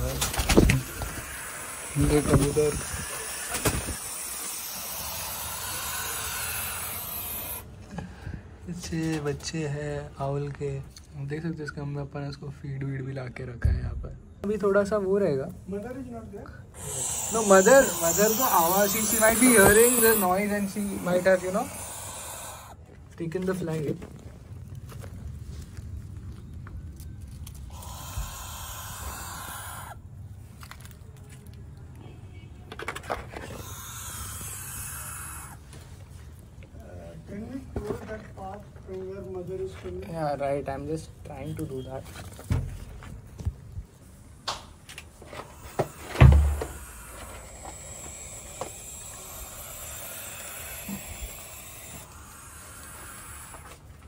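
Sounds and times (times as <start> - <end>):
owl chicks hissing: 0.0 - 8.2, 16.7 - 22.8, 27.5 - 30.1, 33.3 - 35.8, 45.1 - 54.0
loud thump: 46.1 - 46.8.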